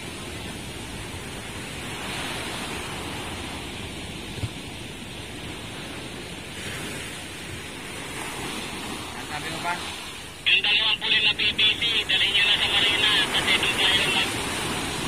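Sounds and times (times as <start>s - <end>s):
wind rumble on microphone: 0.0s - 9.2s
ocean surf breaking: 0.0s - 15.0s.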